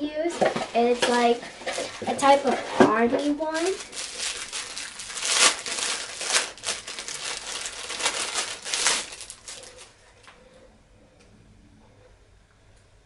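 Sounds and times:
plastic bag crinkling: 0.3 - 10.3.

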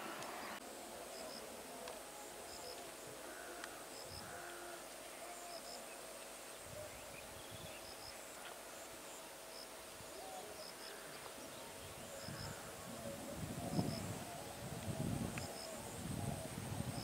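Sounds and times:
soft steady hiss: 0.0 - 17.0
faint animal calls: 1.2 - 6.9.

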